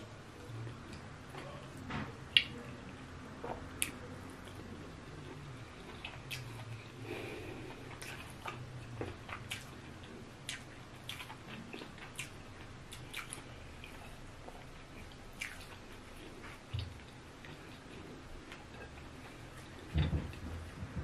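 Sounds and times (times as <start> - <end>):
person chewing: 2.3 - 19.9.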